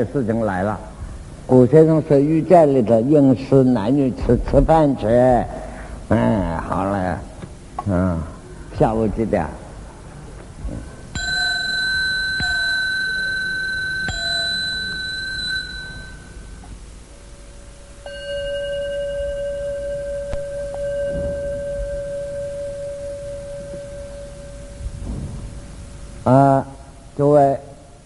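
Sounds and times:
high-pitched bell ringing: 0:11.1 - 0:16.6, 0:18.0 - 0:24.9
low-pitched bell ringing: 0:11.1 - 0:16.6, 0:17.3 - 0:25.7.

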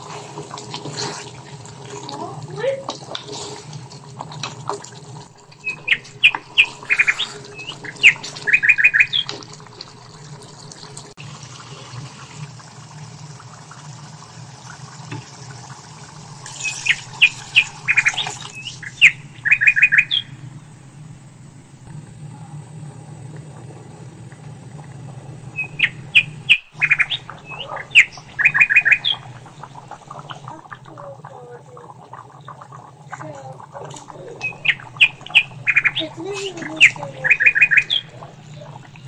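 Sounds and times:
bird chirping and trilling: 0:05.6 - 0:09.3, 0:16.5 - 0:20.6, 0:25.5 - 0:31.1, 0:34.2 - 0:39.0
low hum: 0:16.4 - 0:39.0.

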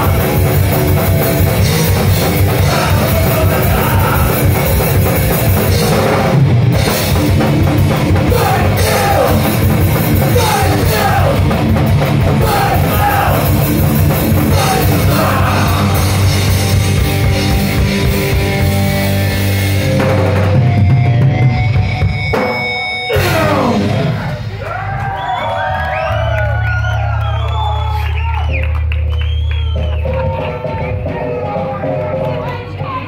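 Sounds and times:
heavy rock band playing: 0:00.0 - 0:25.1.

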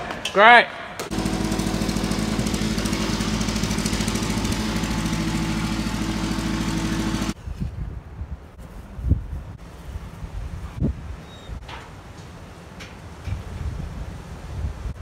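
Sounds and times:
engine idling: 0:01.0 - 0:07.4
faint wind noise: 0:07.4 - 0:15.0.

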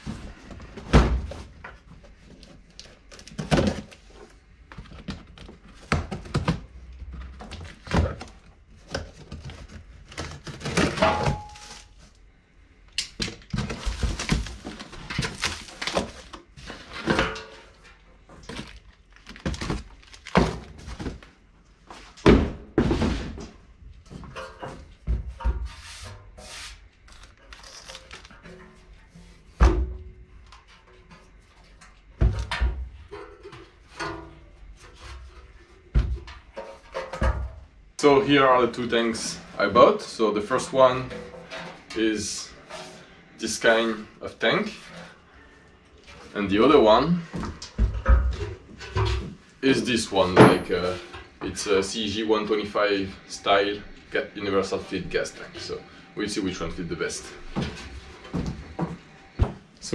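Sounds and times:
cardboard rustling and scraping: 0:13.6 - 0:22.2
packing tape tearing: 0:27.1 - 0:28.4.

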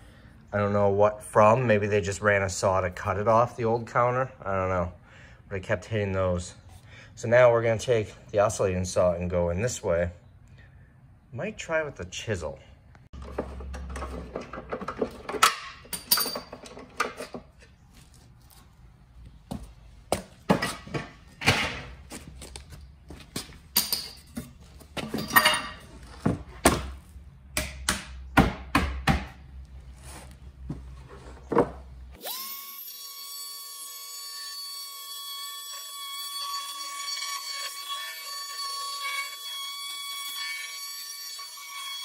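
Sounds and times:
oscillating multi-tool buzzing: 0:32.2 - 0:42.0.

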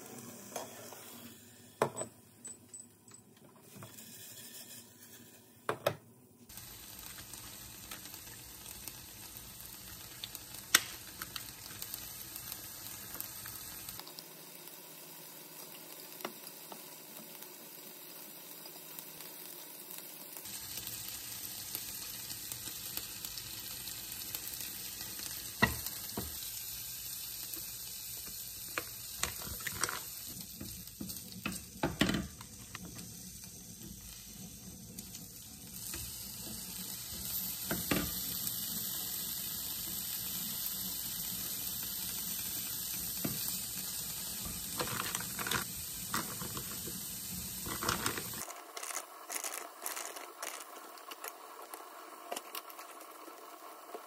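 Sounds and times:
food sizzling in a frying pan: 0:00.0 - 0:02.4, 0:03.6 - 0:54.0.

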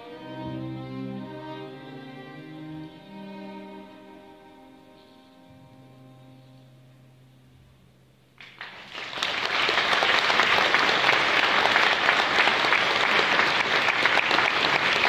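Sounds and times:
string quartet low note: 0:00.0 - 0:08.4
audience applauding: 0:08.4 - 0:15.0.

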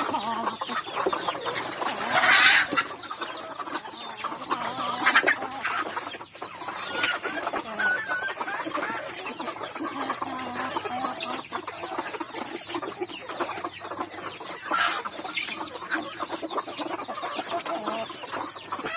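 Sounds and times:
chickens clucking: 0:00.0 - 0:18.9.

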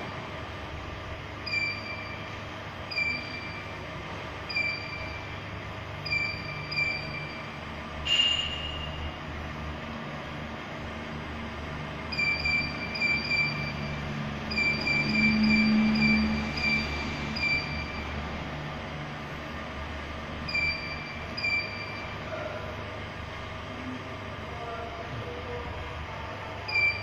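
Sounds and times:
low machine hum: 0:00.0 - 0:27.0
short high key-press beeps: 0:01.4 - 0:02.3, 0:02.9 - 0:03.7, 0:04.5 - 0:05.3, 0:06.0 - 0:07.5, 0:08.1 - 0:09.1, 0:12.1 - 0:18.0, 0:20.5 - 0:22.1, 0:26.7 - 0:27.0.

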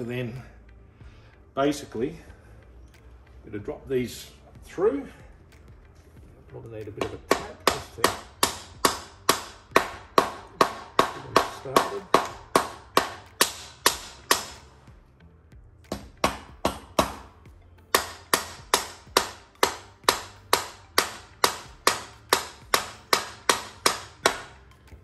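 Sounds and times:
hammer striking metal: 0:06.9 - 0:14.7, 0:15.9 - 0:17.3, 0:17.9 - 0:24.6.

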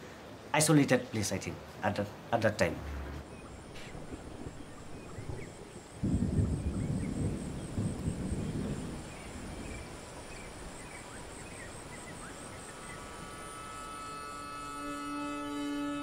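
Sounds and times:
steady hiss: 0:00.0 - 0:16.0
pulsing high insect trill: 0:03.2 - 0:16.0
soft sustained music tones: 0:09.2 - 0:16.0.

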